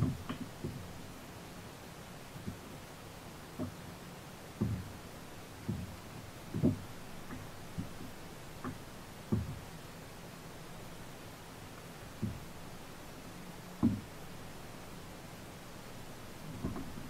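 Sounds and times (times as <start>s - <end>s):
soft thumps on a kayak: 0.0s - 0.9s, 3.6s - 3.8s, 4.6s - 5.0s, 5.6s - 9.7s, 12.2s - 12.6s, 13.8s - 14.1s, 16.4s - 17.0s
faint steady hiss: 0.0s - 17.0s.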